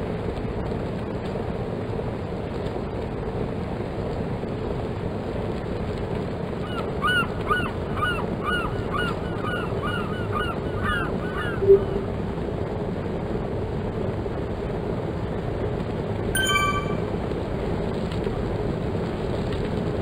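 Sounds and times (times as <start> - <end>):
rushing background noise: 4.2 - 19.9.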